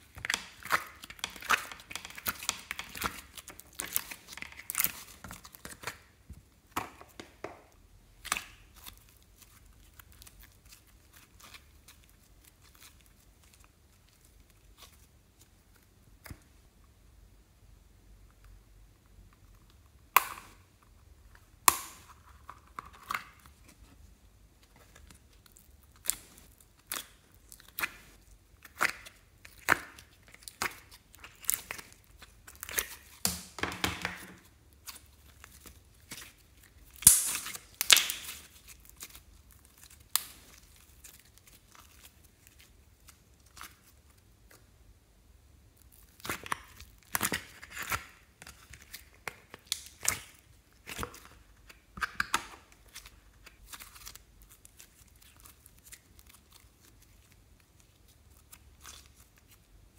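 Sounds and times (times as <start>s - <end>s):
slime tearing and crackling: 0.0s - 6.1s, 8.2s - 15.1s, 24.8s - 33.5s, 34.7s - 44.3s, 45.8s - 59.7s.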